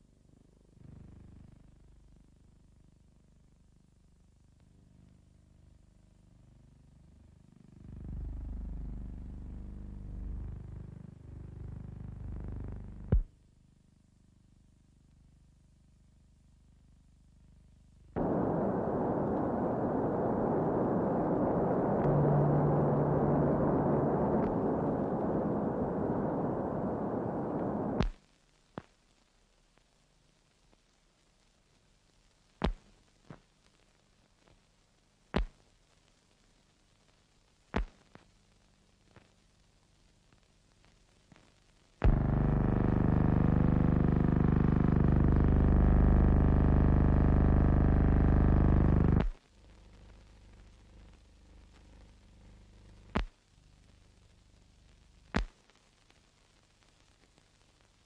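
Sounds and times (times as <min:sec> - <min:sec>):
droning synthesizer chord: 0:18.2 - 0:28.0
volcano roaring rumble: 0:18.2 - 0:28.0
low hum: 0:18.2 - 0:28.1, 0:42.0 - 0:49.3
faint click: 0:53.1 - 0:53.4.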